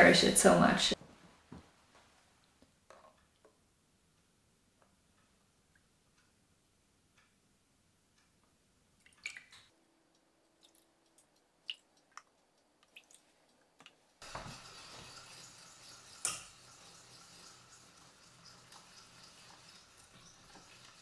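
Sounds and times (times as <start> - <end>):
small clinks and drips: 9.0 - 21.0
sharp clink of kitchenware: 16.2 - 16.5.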